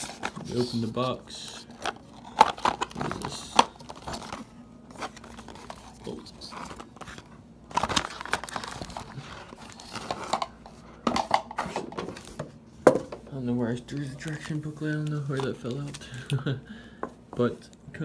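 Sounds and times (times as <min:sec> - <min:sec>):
cardboard rustling and scraping: 0:00.0 - 0:01.2.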